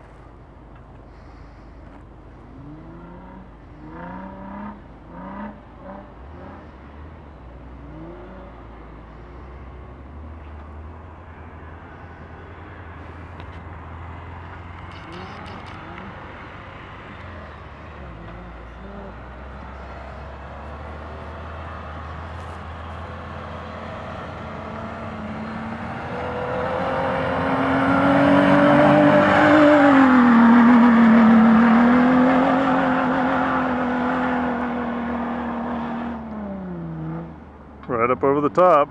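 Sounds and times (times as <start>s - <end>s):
car engine revving: 2.5s - 6.8s, 7.6s - 9.4s, 13.9s - 37.6s.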